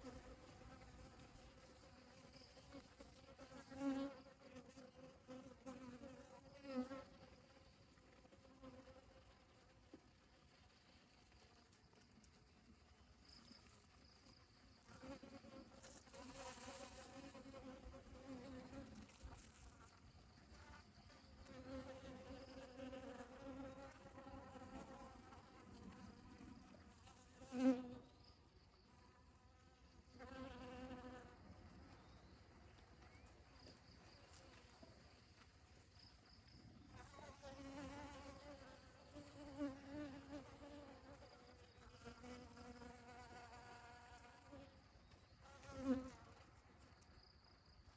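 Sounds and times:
honeybees buzzing in flight: 0.0 - 9.6, 14.8 - 28.1, 30.1 - 31.6, 37.0 - 44.8.

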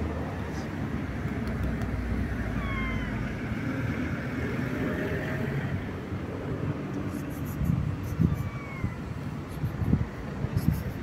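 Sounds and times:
low traffic rumble: 0.0 - 11.0
cat meowing: 2.5 - 3.4, 8.1 - 9.2.

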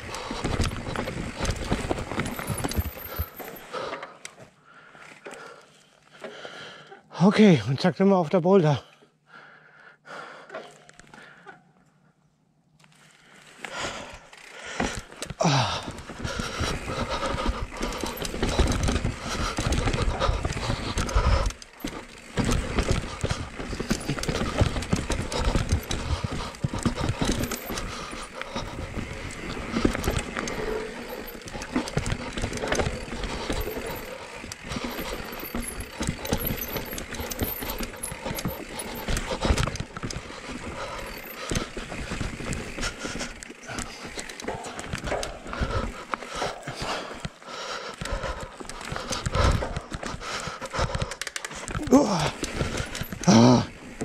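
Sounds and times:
bike rattling and knocking: 0.0 - 4.0, 13.5 - 54.0
bike tyres rolling over dirt: 0.0 - 4.6, 12.8 - 54.0.

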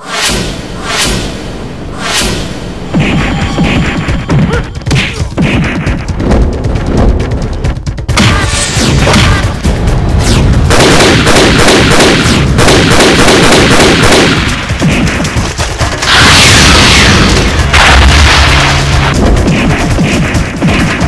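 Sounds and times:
low drone: 0.0 - 4.3
fast dense drumming: 2.8 - 21.0.

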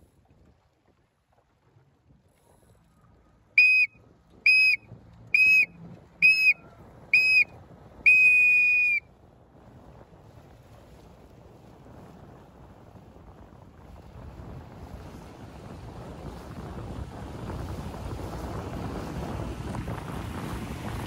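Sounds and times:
faint wind: 0.0 - 21.0
water noise: 0.0 - 21.0
high whistle-like signal blasts: 3.6 - 3.9, 4.5 - 4.8, 5.4 - 6.6, 7.2 - 7.5, 8.1 - 9.0.

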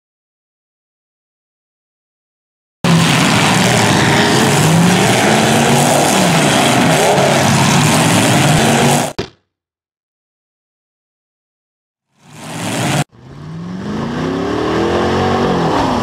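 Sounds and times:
car engines revving: 2.8 - 9.2, 12.2 - 16.0.

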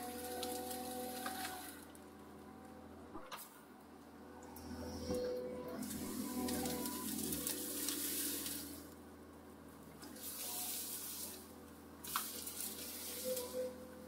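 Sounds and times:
excavator diesel engine hum: 0.0 - 14.0.

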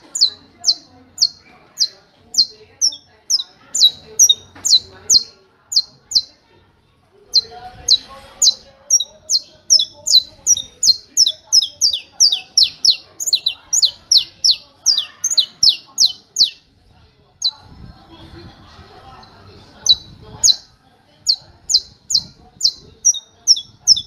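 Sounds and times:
finch singing sharp high notes: 7.3 - 16.6, 21.3 - 24.0.

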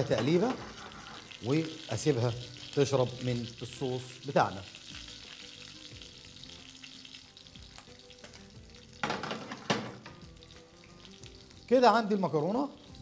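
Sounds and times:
utensil scraping pan: 0.0 - 1.4
pasta sizzling in frying pan: 0.0 - 13.0.

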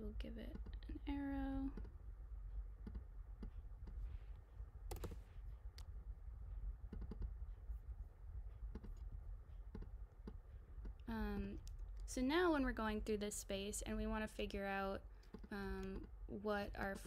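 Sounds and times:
steady low hum: 0.0 - 17.0
computer mouse clicks: 2.8 - 4.0, 4.9 - 5.2, 6.9 - 7.3, 8.7 - 9.1, 15.2 - 16.2.

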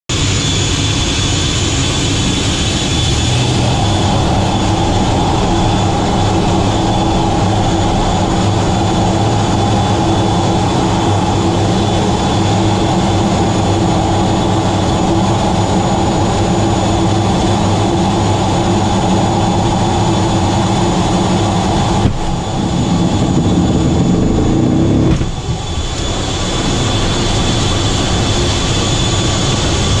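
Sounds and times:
jet engine rumble and whine: 0.1 - 30.0
catapult launch jolt: 24.9 - 26.0.

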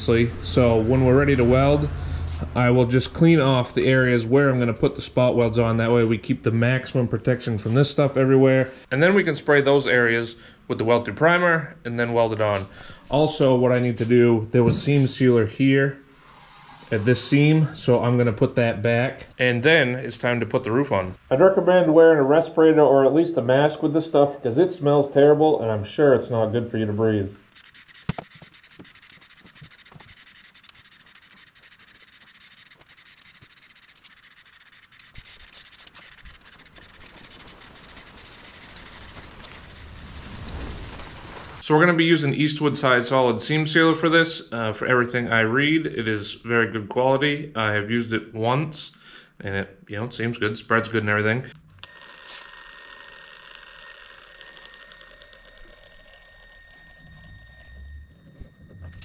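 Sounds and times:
aerosol spray can hissing: 16.2 - 17.0, 27.6 - 41.6.

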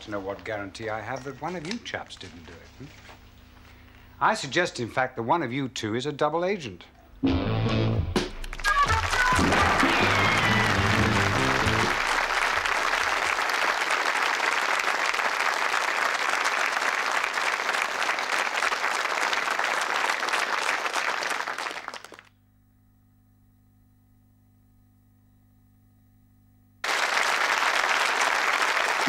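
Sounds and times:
faint steady hum: 0.0 - 7.2, 8.7 - 14.0, 22.3 - 27.0
theme music: 7.2 - 12.7
audience applauding: 8.4 - 22.3, 26.8 - 29.0.

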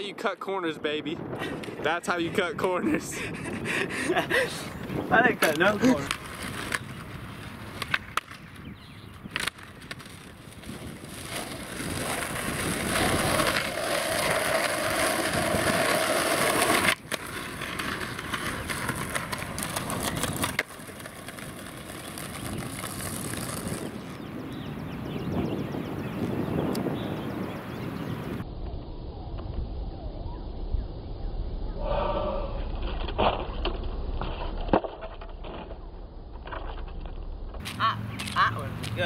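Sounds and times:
skateboard wheels rolling on asphalt: 0.0 - 29.8, 32.4 - 39.0
skateboard clacking on ground: 5.2 - 24.2.

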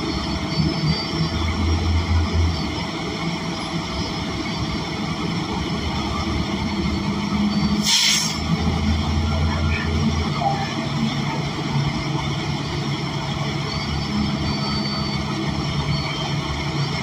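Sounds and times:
bus engine drone: 0.0 - 17.0
compressed air hiss: 7.8 - 8.4.

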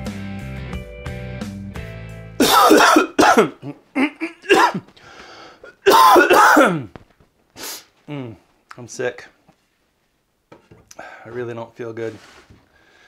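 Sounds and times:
man clearing his throat: 2.4 - 4.9, 5.7 - 6.9
man coughing: 2.4 - 4.9, 5.6 - 6.9.

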